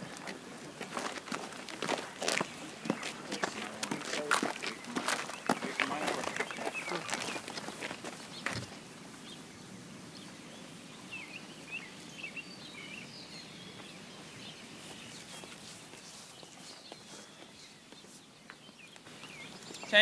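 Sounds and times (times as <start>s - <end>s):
short bird calls: 4.5s - 9.4s.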